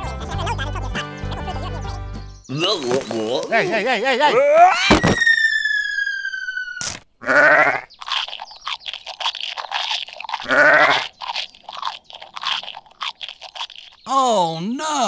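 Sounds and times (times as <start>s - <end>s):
falling whistle: 4.7s - 7.0s
crunchy chewing: 6.8s - 14.1s
sheep bleating: 7.2s - 7.9s, 10.4s - 11.0s.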